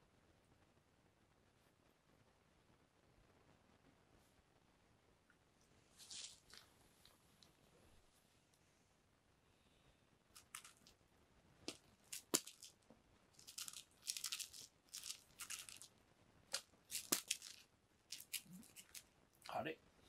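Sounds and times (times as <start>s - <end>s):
scratchy rustling of cat toy: 5.9s - 6.7s.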